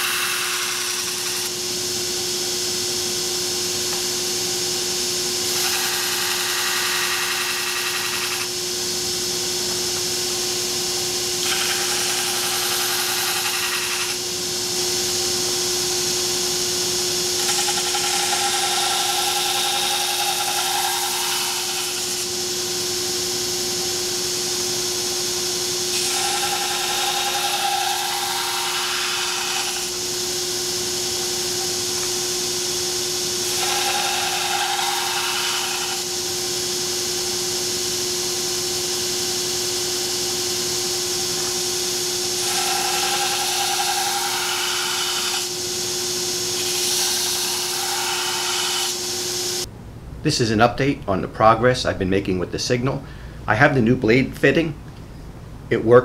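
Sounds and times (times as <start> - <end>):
belt grinder humming: 0.0 - 1.7, 5.4 - 37.6, 39.6 - 49.7
blade grinding hiss: 5.4 - 8.6, 10.5 - 23.1, 24.9 - 37.2, 41.6 - 49.7.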